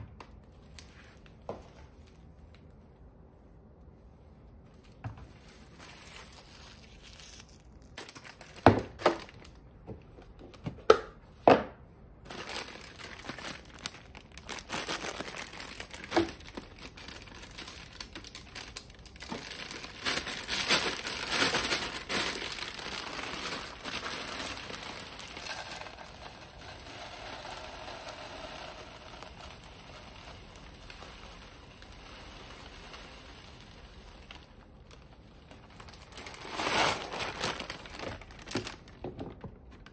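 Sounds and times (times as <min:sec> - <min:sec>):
plastic bag crinkling: 0:04.9 - 0:09.7, 0:12.2 - 0:39.9
oats pouring into container: 0:19.7 - 0:34.5.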